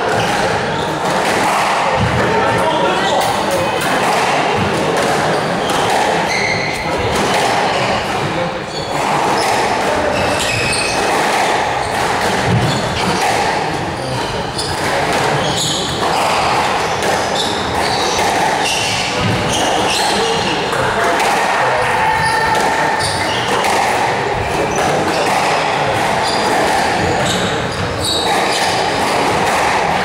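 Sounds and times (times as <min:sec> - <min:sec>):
squash ball struck by rackets: 0:00.1 - 0:02.4, 0:03.2 - 0:21.6, 0:23.4 - 0:30.0
shoes squeaking on wooden floor: 0:05.0 - 0:20.8, 0:21.8 - 0:29.9.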